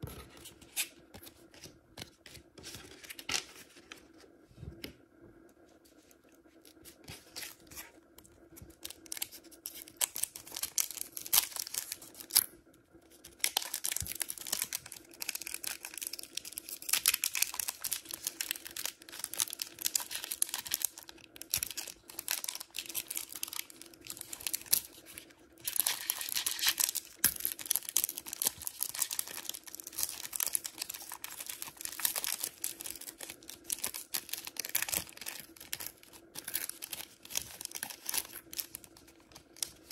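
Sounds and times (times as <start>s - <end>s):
foil wrapper crinkling and tearing: 8.6s - 39.9s.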